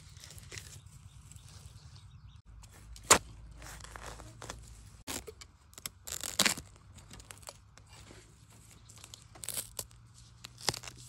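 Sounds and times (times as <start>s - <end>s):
dry leaves crackling: 0.0s - 2.1s, 8.5s - 11.0s.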